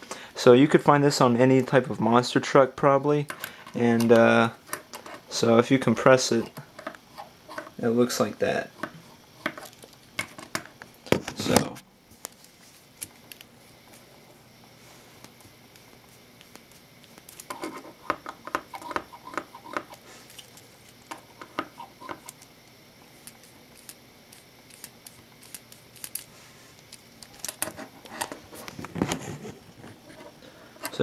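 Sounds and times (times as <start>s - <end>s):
plastic parts clicking and rattling: 26.9s - 29.2s.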